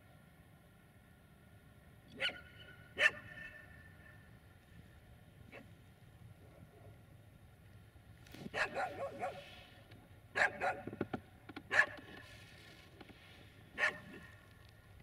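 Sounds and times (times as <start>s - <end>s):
dog barking: 2.2s - 3.6s, 8.5s - 9.6s, 10.3s - 10.9s, 11.7s - 12.1s, 13.8s - 14.4s.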